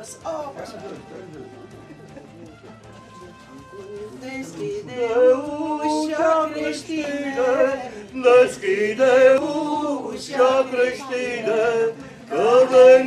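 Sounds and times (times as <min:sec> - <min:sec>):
man and woman singing carol: 0:03.9 - 0:13.0.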